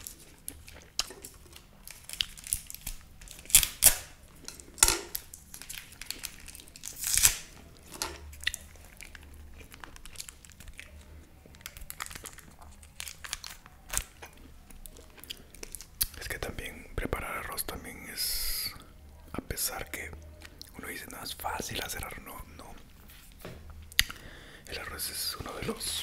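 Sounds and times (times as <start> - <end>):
sauce sachets crinkling and tearing: 0.0 - 16.2.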